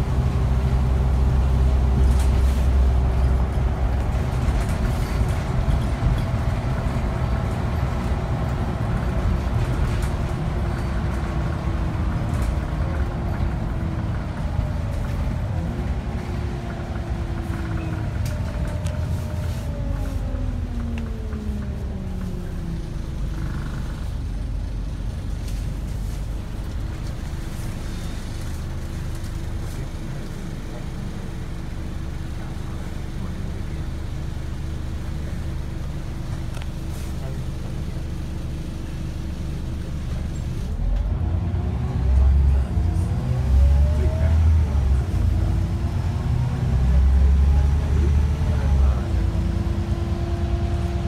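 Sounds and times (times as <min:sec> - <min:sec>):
bus engine and road rumble: 0:00.0 - 0:51.0.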